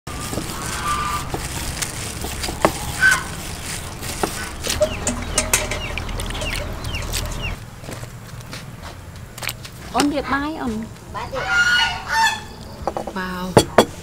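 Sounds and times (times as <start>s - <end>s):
small birds chirping: 0.1s - 7.6s
chickens clucking: 0.2s - 7.6s.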